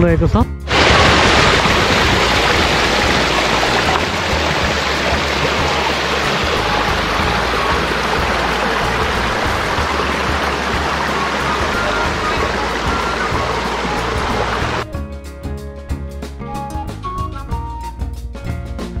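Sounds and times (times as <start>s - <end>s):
river rushing: 0.7s - 14.8s.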